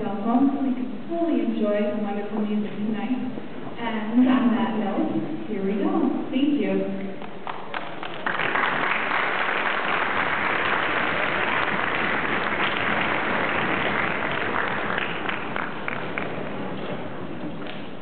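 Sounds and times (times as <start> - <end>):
audience applauding: 7.4 - 17.8.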